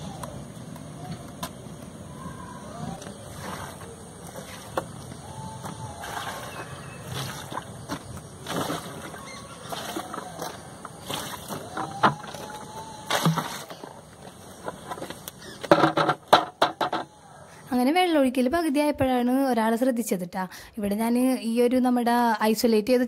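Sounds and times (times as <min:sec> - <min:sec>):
water splashing onto soil: 0:06.0 - 0:14.0.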